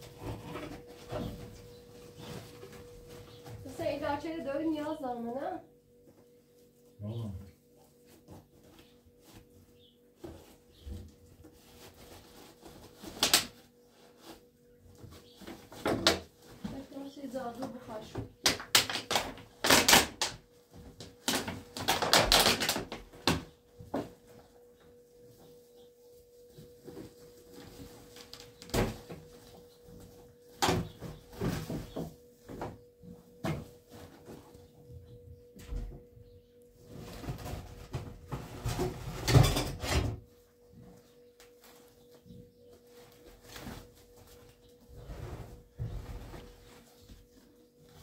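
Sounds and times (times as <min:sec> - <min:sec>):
plastic rustling and crinkling: 0:00.0 - 0:05.2, 0:07.9 - 0:35.0, 0:36.7 - 0:48.0
plastic sack crinkling: 0:15.2 - 0:20.4, 0:21.0 - 0:23.3.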